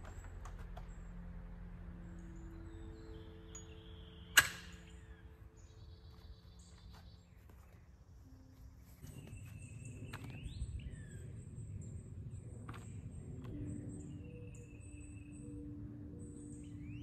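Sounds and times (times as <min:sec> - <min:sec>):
low rumble: 0:00.0 - 0:05.9, 0:09.6 - 0:17.0
birds chirping: 0:00.0 - 0:17.0.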